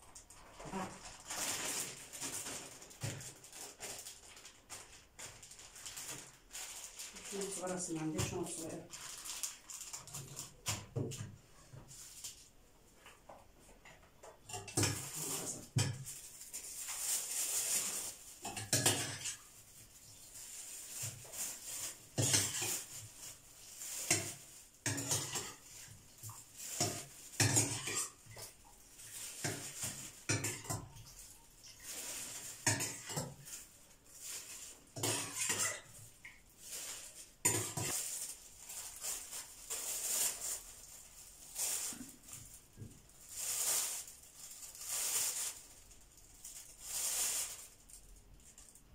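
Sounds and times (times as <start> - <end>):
plastic bag crinkling: 0.0 - 10.9, 14.8 - 48.9
metal spoon scraping steel pot: 22.2 - 22.9, 35.0 - 36.0.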